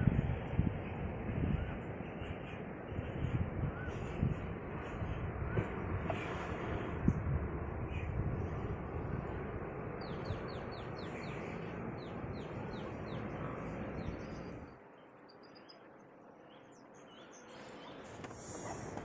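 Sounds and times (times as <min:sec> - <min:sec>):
steady rushing noise: 0:00.0 - 0:15.3
bird chirping: 0:10.0 - 0:18.2.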